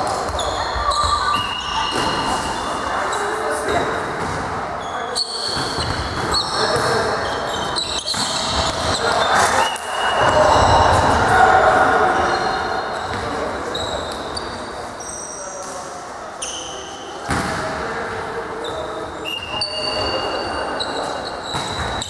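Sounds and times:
shoes squeaking on court floor: 0.0s - 10.4s, 12.2s - 15.7s, 18.6s - 22.0s
voices in echoing hall: 0.0s - 22.0s.

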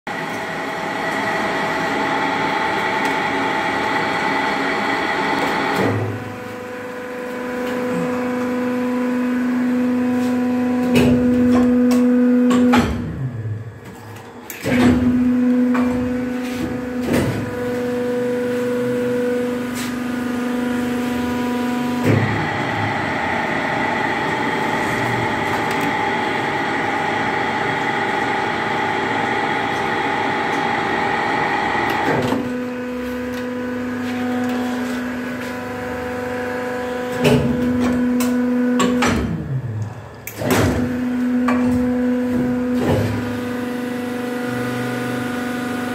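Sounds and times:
machine mechanical hum: 0.1s - 45.9s.

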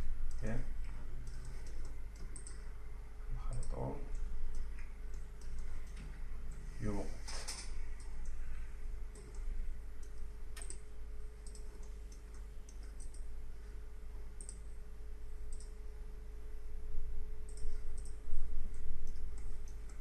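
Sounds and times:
low electrical hum: 0.0s - 20.0s
computer mouse clicks: 1.2s - 2.7s, 3.4s - 6.6s, 7.3s - 8.4s, 9.1s - 13.3s, 14.4s - 14.8s, 15.5s - 15.8s, 17.5s - 20.0s.

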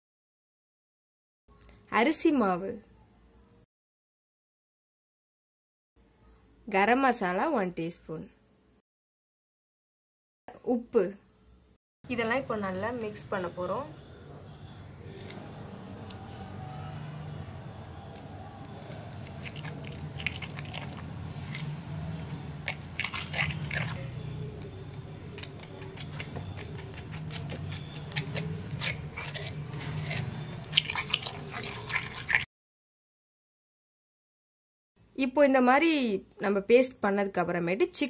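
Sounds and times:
spoon scraping clay pot: 18.8s - 32.4s.

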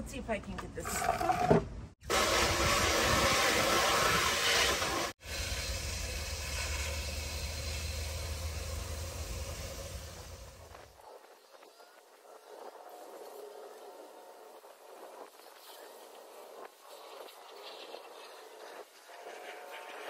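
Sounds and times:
hose water running into bucket: 1.0s - 10.6s.

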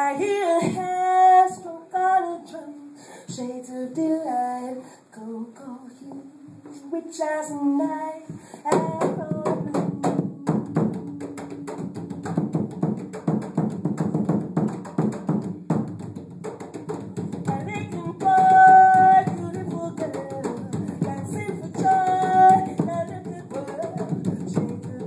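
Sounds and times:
djembes played by hand: 8.7s - 25.0s.

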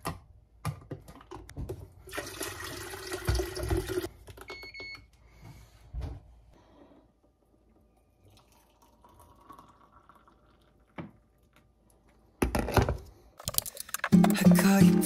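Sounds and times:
hot water pouring into mug: 2.1s - 4.1s, 8.2s - 11.5s.

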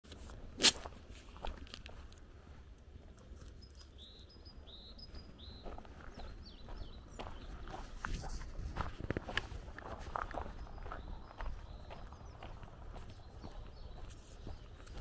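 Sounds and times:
songbird chirping: 1.4s - 15.0s.

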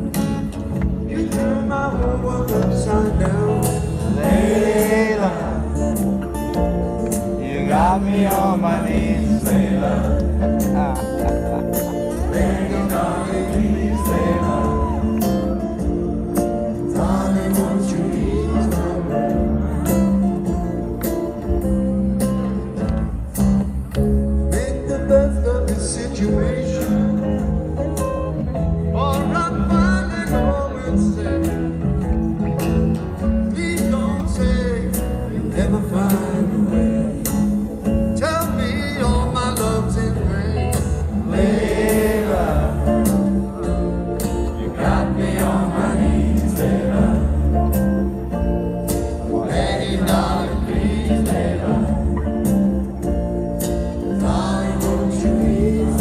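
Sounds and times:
live band with male vocal: 0.0s - 56.0s.

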